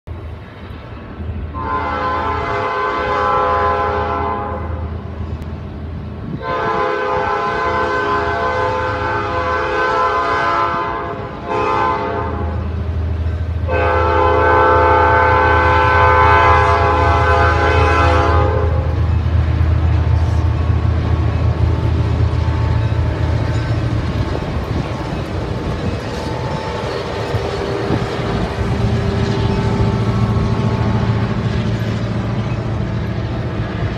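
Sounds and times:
freight train cars rolling: 0:00.1 - 0:33.9
locomotive engine rumbling: 0:00.1 - 0:33.9
locomotive horn blasts: 0:01.6 - 0:04.9, 0:06.4 - 0:12.7, 0:13.6 - 0:19.0, 0:25.5 - 0:31.6.

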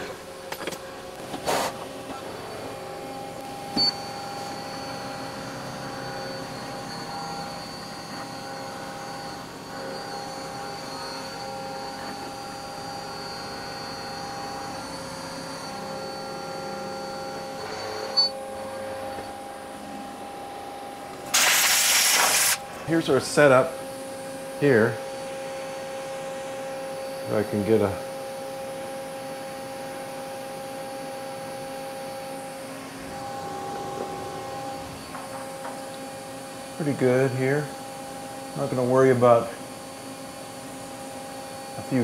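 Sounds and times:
machine spindle hum and whine: 0:00.0 - 0:42.0
compressed air blast hissing: 0:21.3 - 0:22.6.

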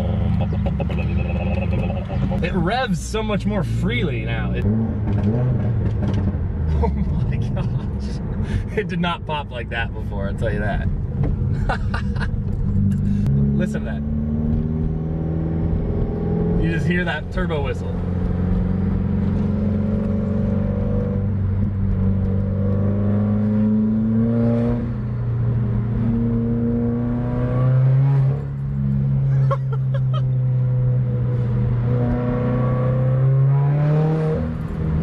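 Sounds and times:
car engine revving: 0:00.0 - 0:35.0.

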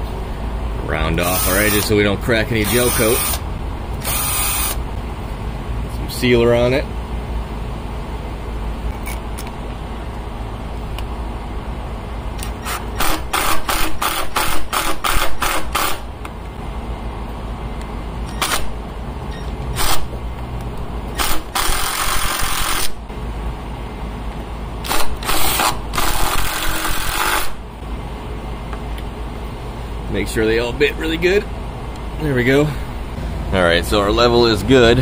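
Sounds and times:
air conditioner hum: 0:00.0 - 0:35.0
impact driver driving screws: 0:12.5 - 0:16.0, 0:21.2 - 0:23.0, 0:24.9 - 0:27.6.

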